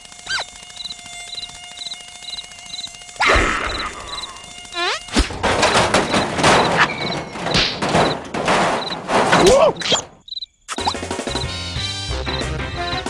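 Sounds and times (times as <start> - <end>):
buzzing insect noise: 0.0 - 9.0, 9.8 - 12.0
cartoon thumps and knocks: 5.1 - 10.1.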